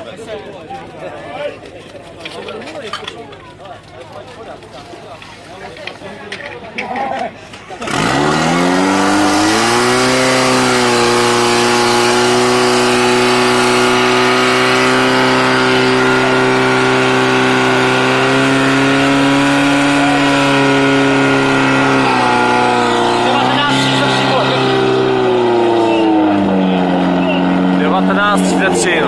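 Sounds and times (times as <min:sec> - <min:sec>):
pump engine revving: 0:07.4 - 0:29.0.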